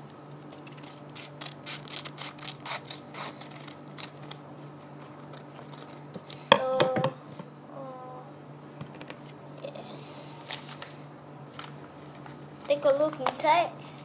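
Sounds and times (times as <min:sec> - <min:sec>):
scissors snipping paper: 0:00.3 - 0:06.4.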